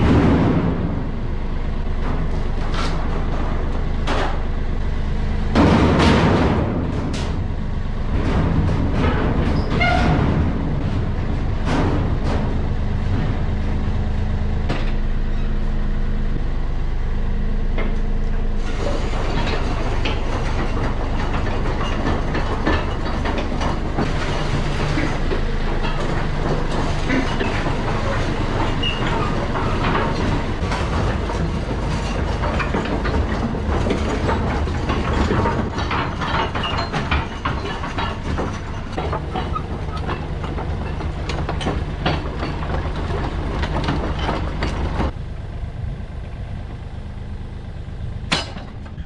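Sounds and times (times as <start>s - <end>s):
excavator engine drone: 0.0s - 49.0s
tracks clattering and clanking: 0.0s - 49.0s.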